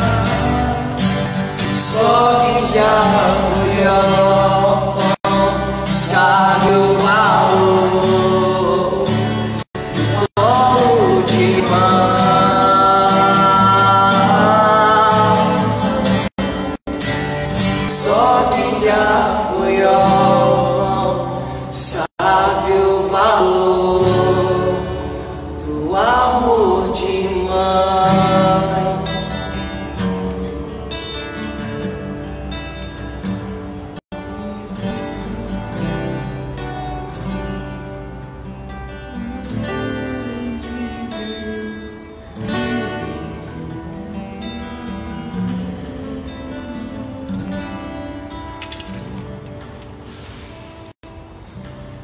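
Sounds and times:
strummed acoustic guitar: 0.0s - 52.0s
voices singing a hymn: 1.8s - 9.6s, 10.2s - 16.4s, 17.9s - 29.0s.

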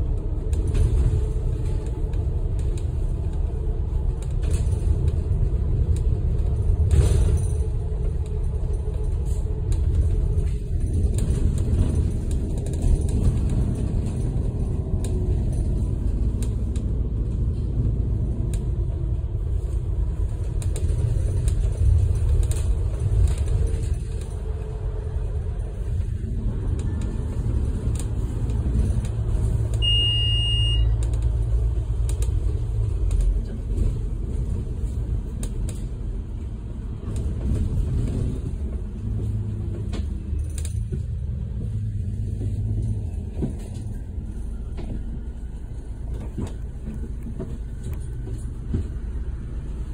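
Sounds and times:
bus engine and road rumble: 0.0s - 49.9s
short electronic beep: 29.8s - 31.0s.

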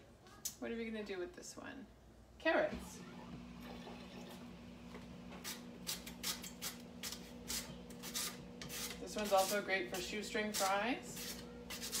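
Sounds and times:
mandoline cutting scrapes: 5.9s - 12.0s.

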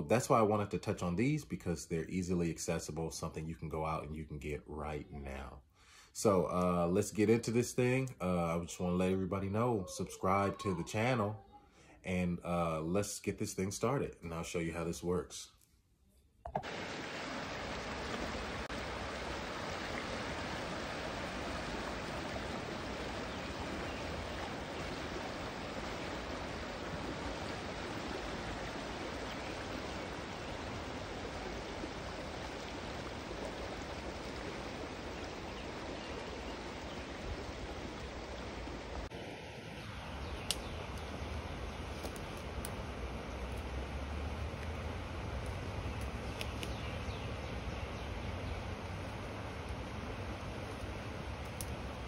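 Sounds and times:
creek water rushing: 16.6s - 52.0s.

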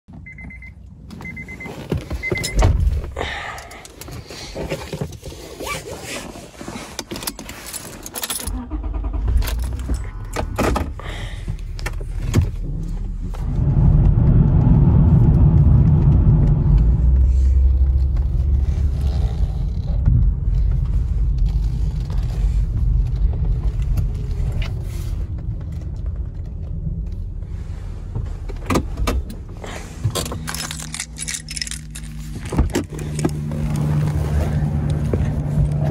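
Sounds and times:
car road and engine rumble: 0.1s - 35.9s
keys jangling: 7.2s - 8.6s, 30.2s - 33.3s.

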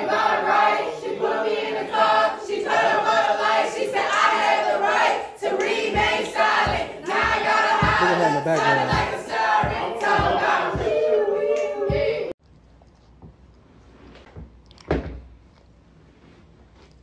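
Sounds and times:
crowd singing and chanting: 0.0s - 12.4s
deep thumps: 5.9s - 8.0s.

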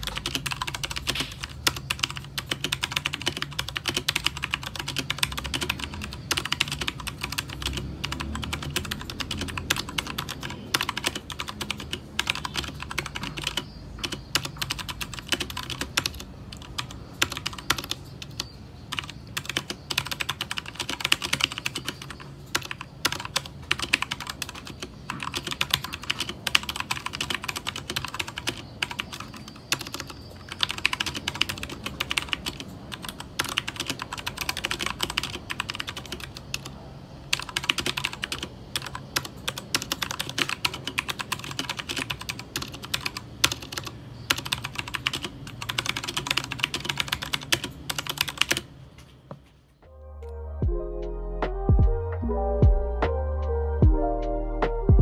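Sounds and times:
mechanical keyboard typing: 0.0s - 36.7s, 37.3s - 48.7s.

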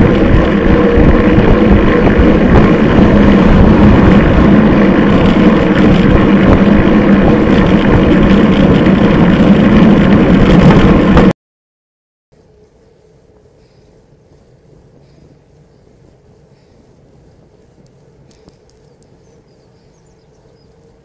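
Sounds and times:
wind rumble on microphone: 0.0s - 11.3s.

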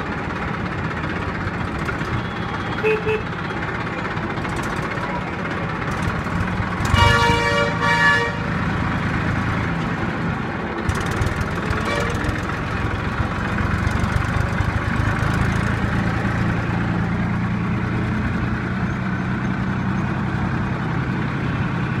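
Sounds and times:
tractor engine running: 0.0s - 22.0s
vehicle horn honking: 2.1s - 3.4s, 6.8s - 8.6s, 11.8s - 12.4s.

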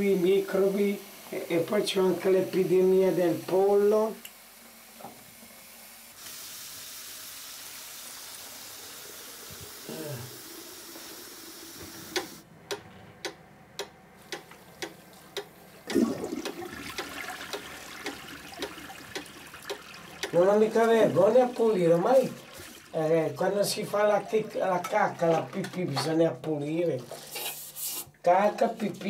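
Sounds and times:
toilet flushing: 4.9s - 12.4s, 15.7s - 27.5s
clock ticking: 12.6s - 20.5s.

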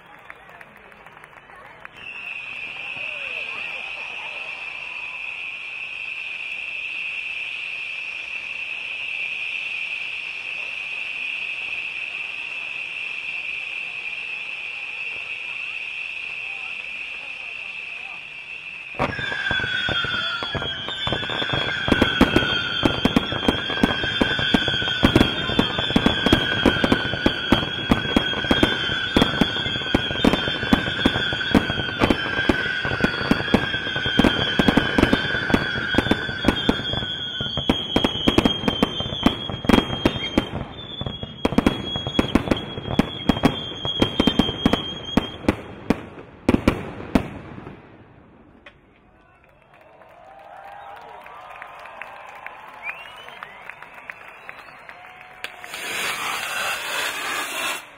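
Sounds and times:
fireworks bangs and crackles: 0.1s - 49.1s, 52.1s - 57.9s
high firework whistle: 1.9s - 46.0s, 50.6s - 57.9s
low firework whistle: 1.9s - 46.0s, 50.5s - 57.9s.

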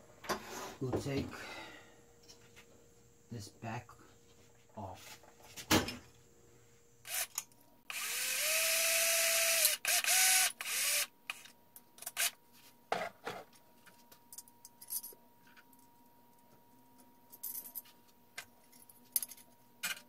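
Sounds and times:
cordless drill drilling into metal: 7.1s - 7.3s, 7.9s - 11.4s.

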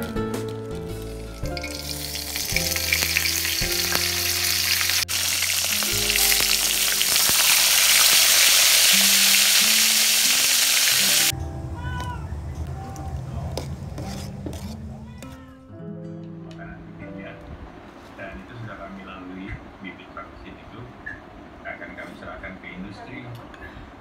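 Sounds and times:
fish sizzling in hot oil: 0.9s - 11.3s.

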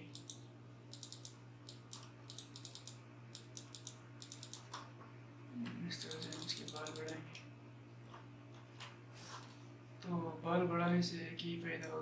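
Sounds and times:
keyboard and mouse clicking: 0.0s - 4.8s, 6.0s - 7.2s
low electrical hum: 0.0s - 12.0s.

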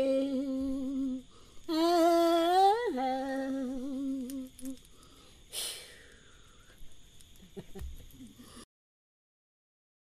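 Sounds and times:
woman singing solo: 0.0s - 4.8s.

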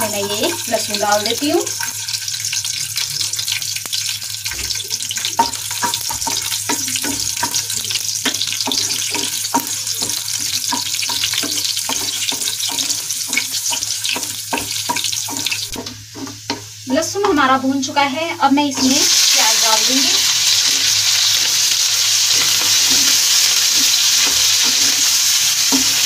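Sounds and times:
garlic sizzling in hot oil: 0.0s - 26.0s
wooden spatula stirring in pan: 4.4s - 17.5s, 18.8s - 26.0s.

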